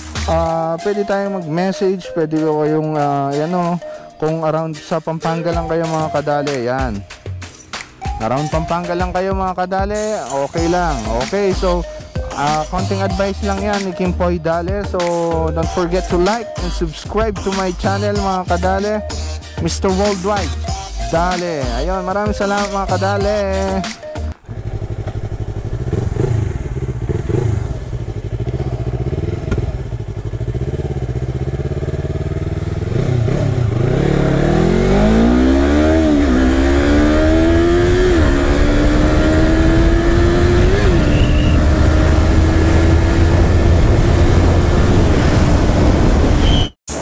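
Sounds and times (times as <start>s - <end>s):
motorcycle engine accelerating: 24.4s - 46.7s.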